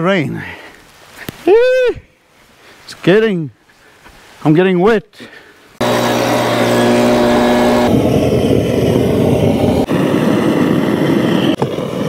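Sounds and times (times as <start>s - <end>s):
propane torch burning: 5.8s - 12.0s.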